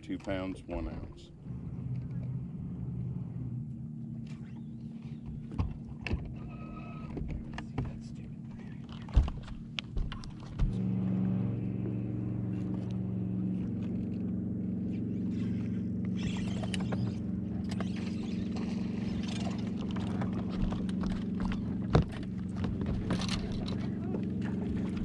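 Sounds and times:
electric motor humming: 1.3 - 7.6, 9.2 - 25.0
handling clicks and rustles: 16.2 - 25.0.

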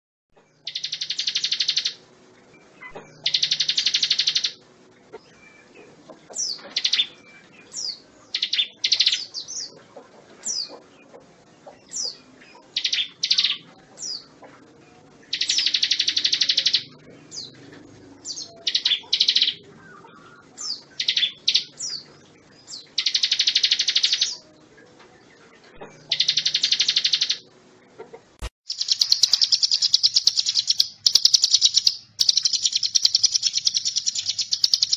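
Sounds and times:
songbird rattling trills: 0.6 - 2.0, 2.8 - 4.6, 15.3 - 17.6, 23.0 - 24.4, 26.0 - 27.4, 28.7 - 34.9
bird chirps and whistles: 0.7 - 2.0, 2.9 - 4.6, 7.8 - 9.3, 15.3 - 16.9, 20.6 - 22.0, 22.7 - 24.4, 26.1 - 27.4, 28.7 - 34.9.

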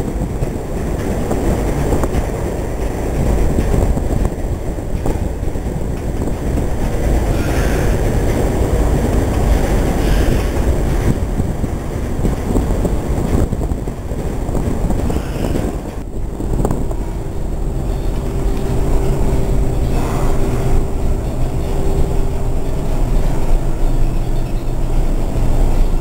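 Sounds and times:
ship engines rumbling: 0.0 - 26.0
wind buffeting microphone: 0.0 - 26.0
mid-pitched hum: 14.6 - 26.0.

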